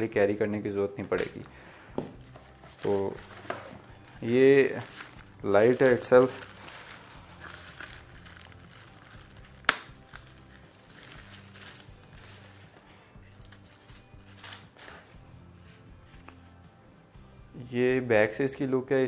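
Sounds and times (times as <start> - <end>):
faint packaging rustling: 2.1 - 16.6.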